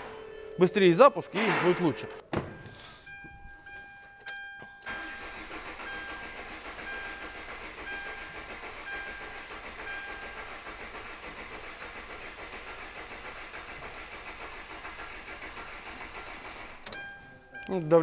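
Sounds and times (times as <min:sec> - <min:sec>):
starter motor cranking engine: 0:04.8 - 0:17.0.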